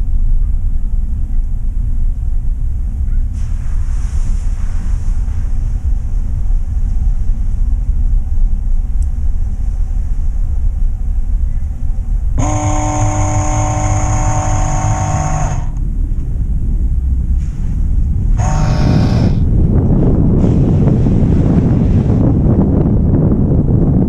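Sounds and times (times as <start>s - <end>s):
vehicle driving slowly: 0.0s - 20.0s
wind buffeting microphone: 0.0s - 24.0s
multi-pitched tone: 12.4s - 15.8s, 18.4s - 19.5s.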